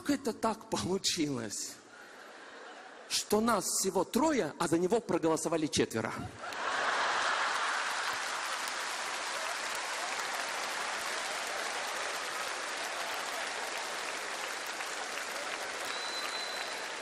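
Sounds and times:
audience applauding: 6.4s - 17.0s.

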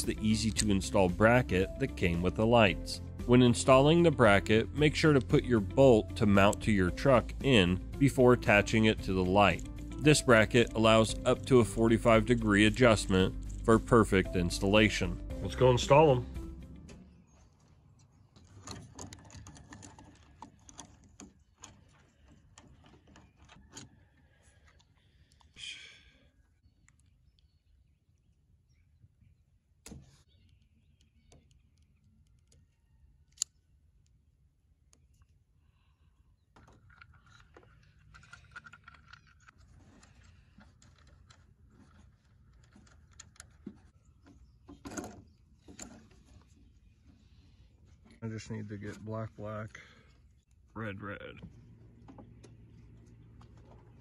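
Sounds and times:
small clicks and rustling: 16.9s - 25.6s, 36.5s - 46.6s.

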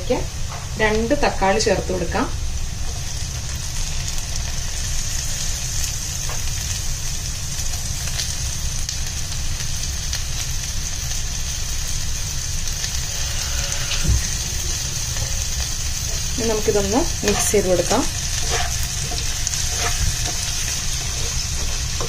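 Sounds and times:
onions sizzling in hot oil: 0.0s - 22.0s
low thump: 14.0s - 14.4s.

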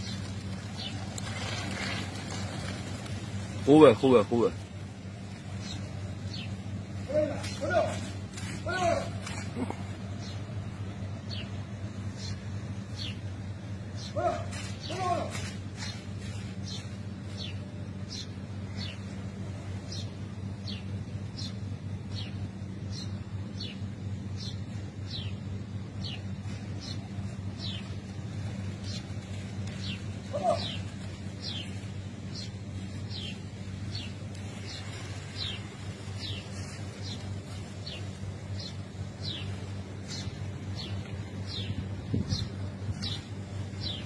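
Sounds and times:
steady low hum: 0.0s - 44.0s
loud bird call: 29.8s - 31.8s.

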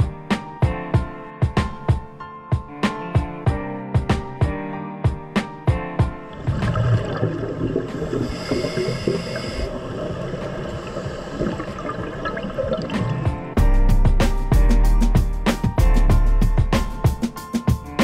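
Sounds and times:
underwater bubbles gurgling: 6.3s - 13.6s.

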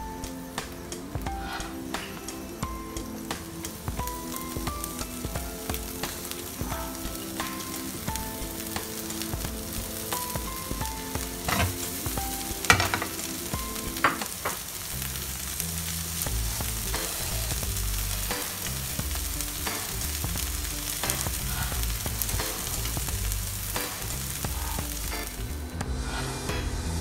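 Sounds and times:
food sizzling in hot oil: 0.0s - 26.2s
spatula scraping and knocking pan: 11.3s - 13.3s, 14.0s - 14.6s.

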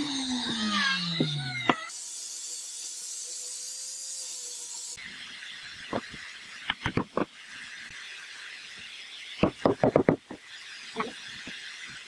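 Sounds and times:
wooden knocks: 9.4s - 10.4s.

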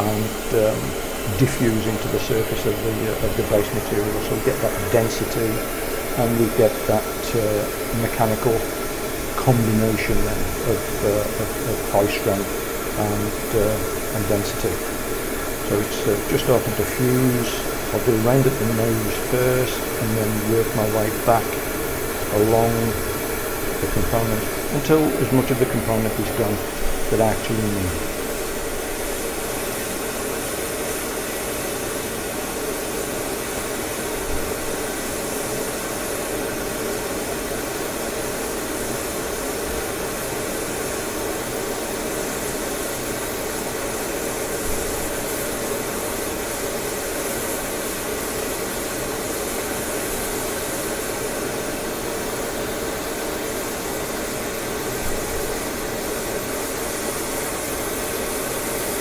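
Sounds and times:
torch flame rushing: 0.0s - 37.9s.

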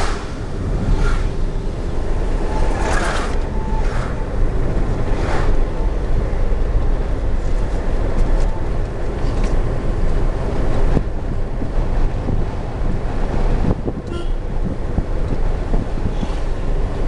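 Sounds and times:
vehicles whooshing past: 0.0s - 8.2s, 15.7s - 17.0s
road and engine rumble: 0.0s - 17.0s.

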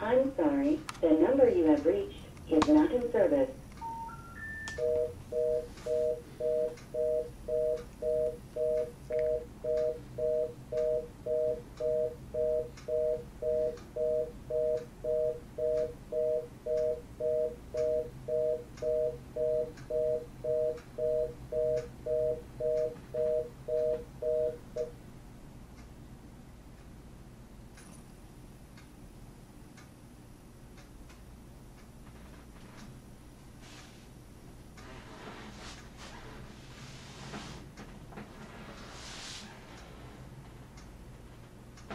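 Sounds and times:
telephone fast busy tone: 3.8s - 24.9s.

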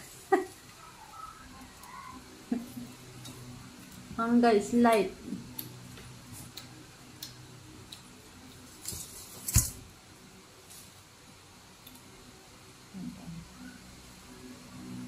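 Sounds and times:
wet clicks of mango eating: 6.4s - 8.2s.

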